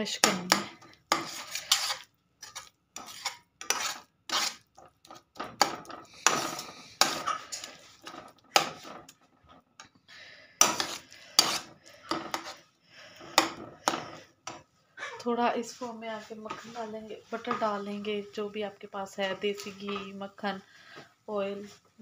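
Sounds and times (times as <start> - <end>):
spatula scraping a frying pan: 0.2 - 9.6, 10.6 - 14.6, 15.6 - 18.3.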